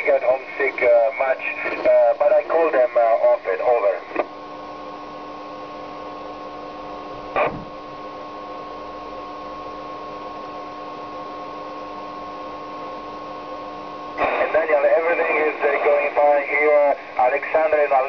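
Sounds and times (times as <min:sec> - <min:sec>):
radio static hiss: 0:00.0 - 0:04.5, 0:07.3 - 0:07.7, 0:12.7 - 0:18.0
low hum through speaker: 0:00.0 - 0:18.0
burst of radio noise: 0:14.2 - 0:18.0.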